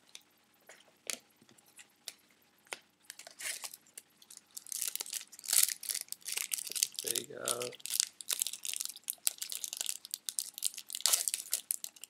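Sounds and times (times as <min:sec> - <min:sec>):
foil wrapper crinkling: 0:03.1 - 0:12.0.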